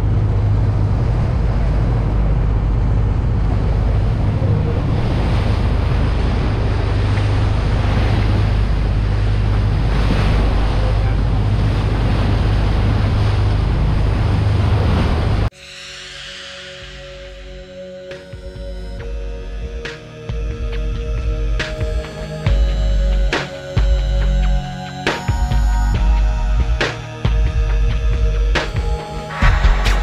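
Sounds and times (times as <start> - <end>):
wind on microphone: 0.0 - 19.9, 25.2 - 30.0
water rushing: 0.0 - 20.6
boat engine humming: 0.0 - 30.0.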